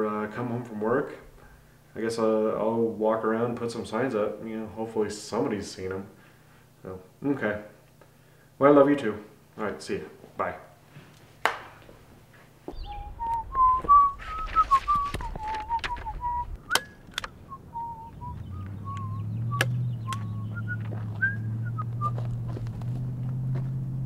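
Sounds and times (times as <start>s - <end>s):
low rumble: 12.7s - 24.0s
person whistling a tune: 12.8s - 22.3s
sharp clicks: 14.8s - 17.4s, 18.6s - 20.4s.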